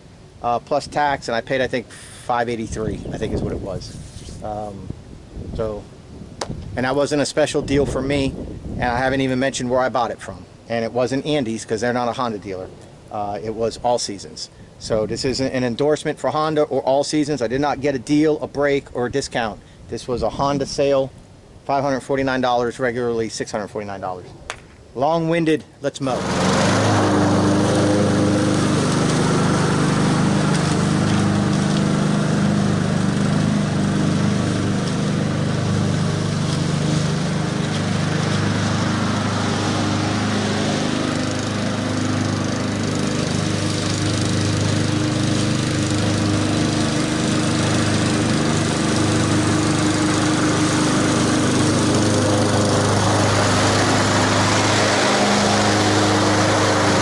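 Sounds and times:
lawn mower engine running: 0:26.0 - 0:57.0.

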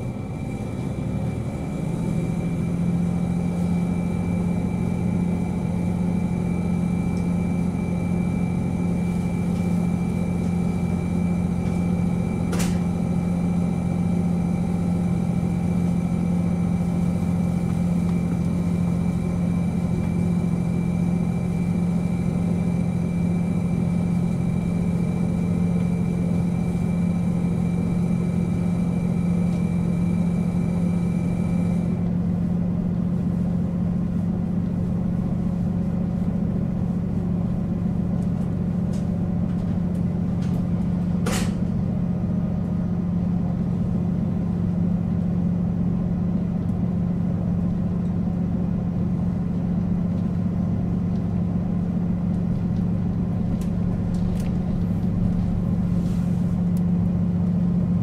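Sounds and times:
diesel engine idling: 0:00.0 - 0:58.0
high whine: 0:51.8 - 0:58.0.

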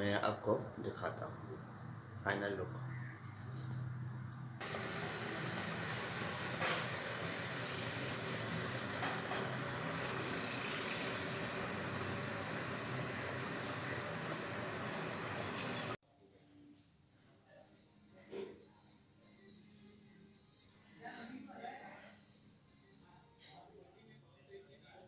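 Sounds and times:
curry bubbling in a pot: 0:04.6 - 0:16.0.

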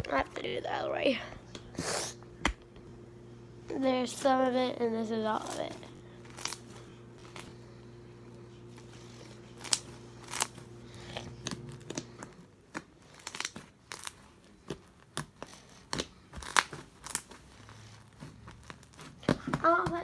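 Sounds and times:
slime popping and crackling: 0:12.7 - 0:17.5.

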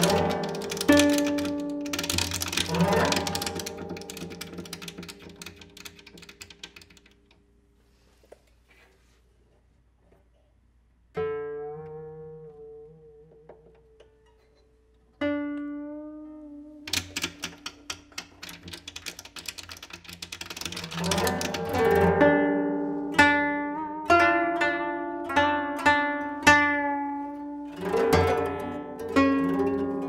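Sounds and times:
koto plucked notes: 0:00.0 - 0:06.9, 0:11.2 - 0:18.8, 0:20.5 - 0:30.0.

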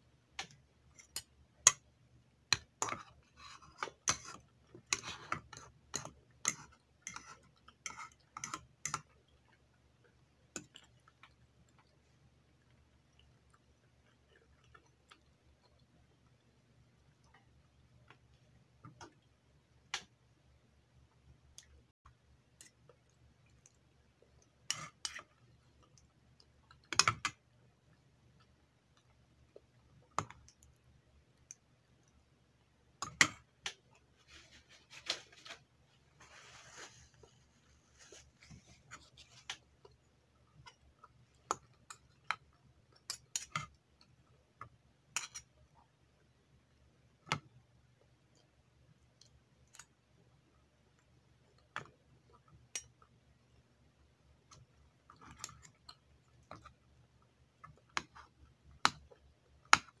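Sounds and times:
soft chewing: 0:00.3 - 0:20.2, 0:21.0 - 1:00.0
cutlery scraping a bowl: 0:02.8 - 0:09.0.

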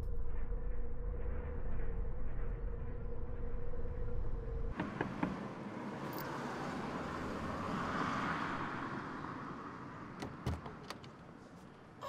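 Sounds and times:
car passing: 0:04.7 - 0:11.5.

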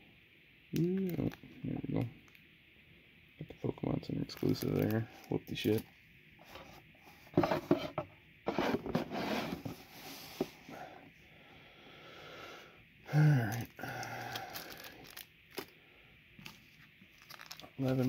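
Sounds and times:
cardboard box scraping and knocking: 0:07.3 - 0:10.6
man grunting and humming: 0:13.1 - 0:14.7.

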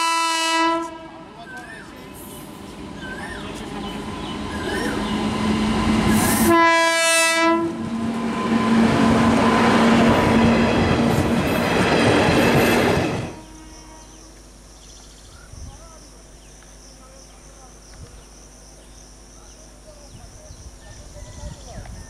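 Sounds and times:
train horn blast: 0:00.0 - 0:01.4, 0:04.8 - 0:10.7, 0:13.0 - 0:14.4
train wheels clattering over rails: 0:07.9 - 0:13.4.

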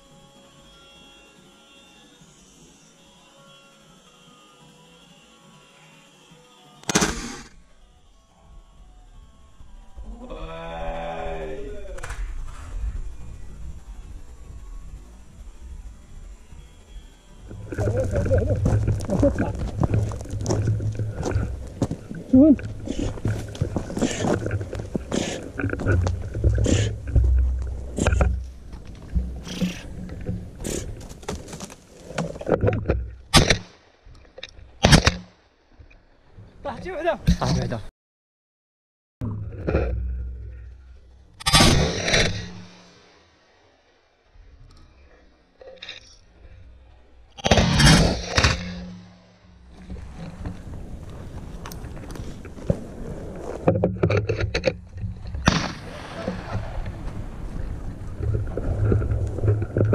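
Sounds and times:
rustles: 0:11.8 - 0:35.2, 0:39.5 - 0:59.9
camera handling rumble: 0:17.6 - 0:33.6.

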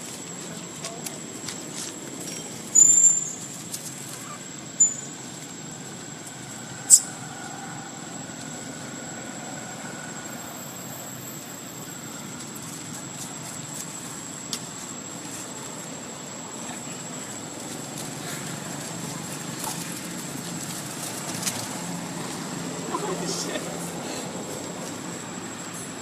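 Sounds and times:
background noise: 0:00.0 - 0:26.0
monkey squeaks: 0:02.3 - 0:03.4, 0:04.2 - 0:05.1.

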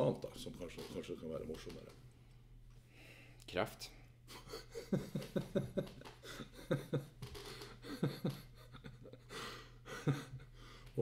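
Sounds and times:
man breathing: 0:02.4 - 0:03.4, 0:07.4 - 0:08.0, 0:09.2 - 0:11.0
man's stifled laughter: 0:04.3 - 0:10.6.

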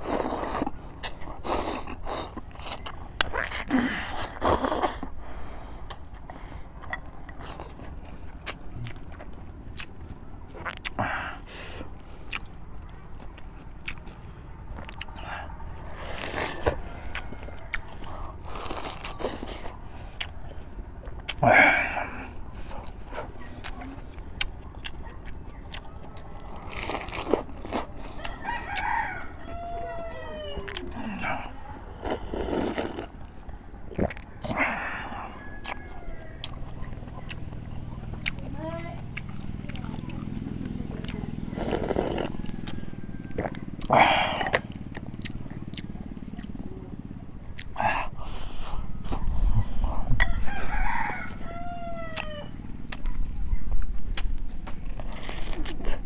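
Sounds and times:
rooster crowing: 0:16.6 - 0:18.3, 0:28.1 - 0:31.2, 0:33.5 - 0:36.9, 0:42.2 - 0:43.8, 0:49.9 - 0:52.7.

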